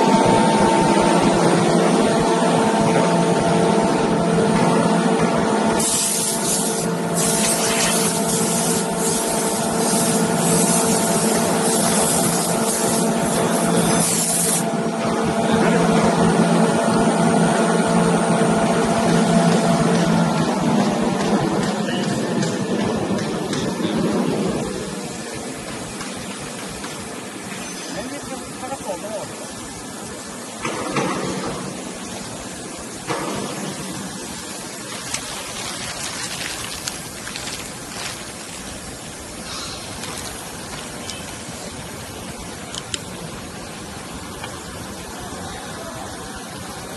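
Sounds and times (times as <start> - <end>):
high hiss: 5.8 - 14.7, 24.5 - 46.9
plastic bag crinkling: 34.7 - 41.8.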